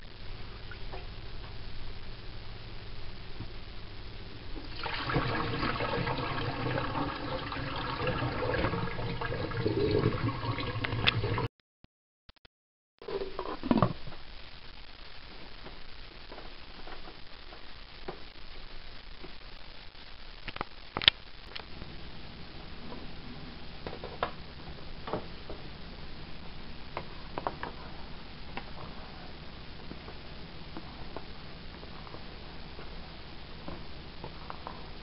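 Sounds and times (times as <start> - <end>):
pot heating with steady hiss: 0.0 - 11.5, 13.0 - 35.0.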